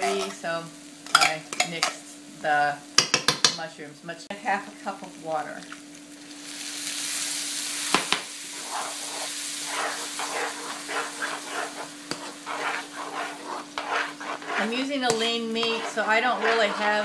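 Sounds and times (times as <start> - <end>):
metal spoon scraping pan: 0.0 - 0.4, 8.5 - 17.0
water hissing in hot pan: 0.0 - 3.0, 4.5 - 17.0.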